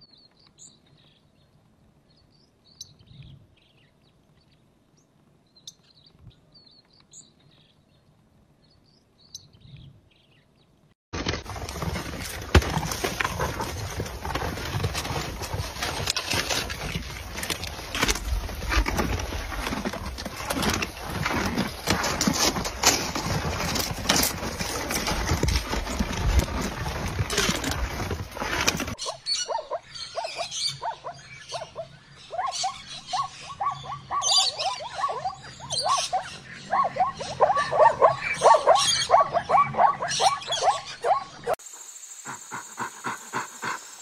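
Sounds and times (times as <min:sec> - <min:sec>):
crunches and knocks in snow: 0:11.2 - 0:29.0
zebras barking calls: 0:28.4 - 0:41.5.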